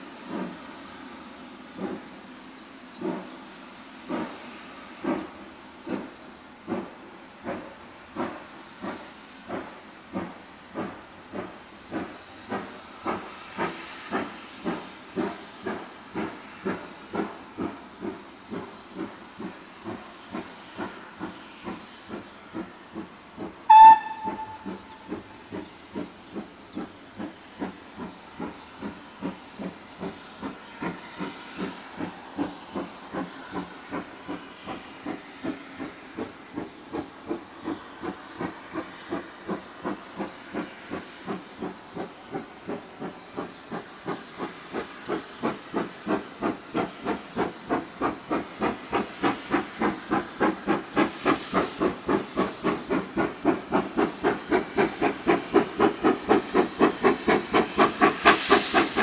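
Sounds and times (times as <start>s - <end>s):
steam locomotive exhaust beats: 0.0s - 59.0s
shrill train whistle: 23.7s - 25.1s.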